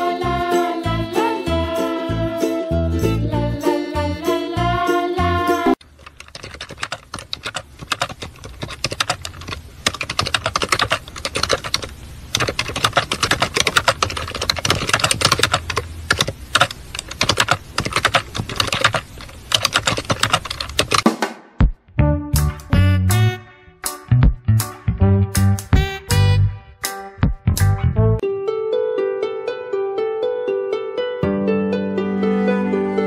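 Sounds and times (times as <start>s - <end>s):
keyboard typing clatter: 5.8s - 21.0s.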